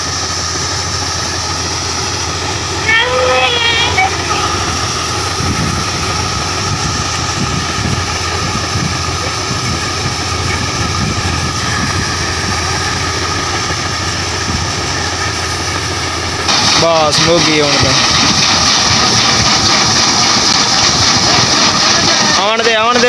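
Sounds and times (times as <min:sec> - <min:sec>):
auger whine: 0:00.0 - 0:23.0
combine harvester drone: 0:00.0 - 0:23.0.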